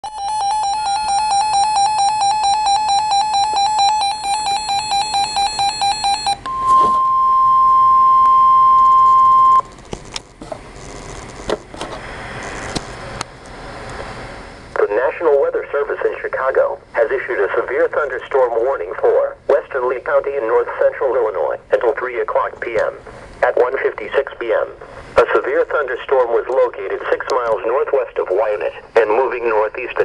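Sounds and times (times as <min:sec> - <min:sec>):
steady single-pitch alert tone: 0:00.0 - 0:09.6.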